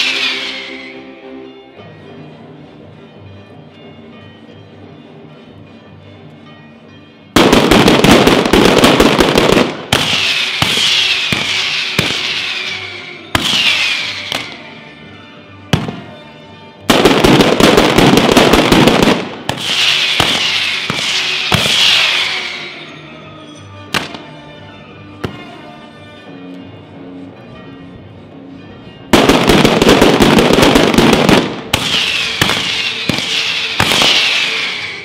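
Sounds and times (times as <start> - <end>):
firecrackers crackling: 0.0 - 0.9, 7.4 - 15.0, 15.7 - 16.2, 16.8 - 23.0, 23.9 - 24.4, 29.1 - 35.0
falling whistles: 0.0 - 1.2, 10.1 - 14.8, 19.8 - 23.7, 31.9 - 35.0
sharp bangs: 7.4 - 14.9, 16.9 - 23.0, 29.2 - 35.0.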